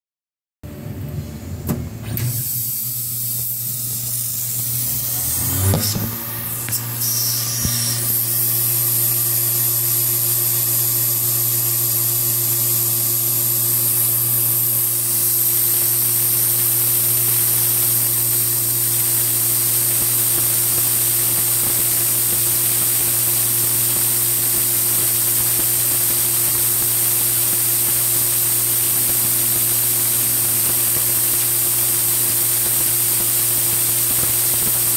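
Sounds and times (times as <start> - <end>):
machine hum: 0.7 - 19.5
spray nozzle hissing: 2.6 - 9.0.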